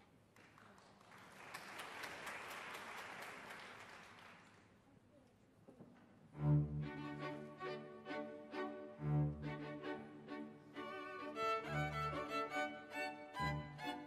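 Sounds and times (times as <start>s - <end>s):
audience applause: 0.4s - 4.7s
orchestra low bowed strings: 6.2s - 14.0s.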